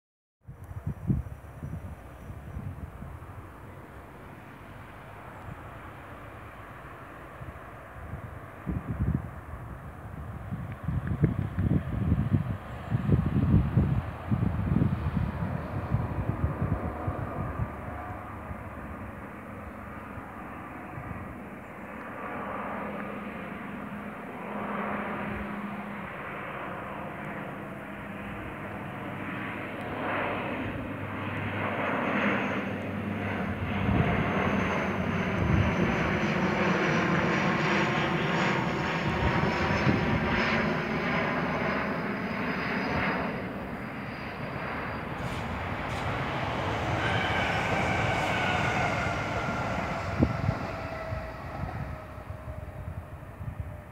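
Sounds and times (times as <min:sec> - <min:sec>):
propeller aircraft drone: 0:00.5 - 0:53.9
high turbine whine: 0:29.9 - 0:53.9.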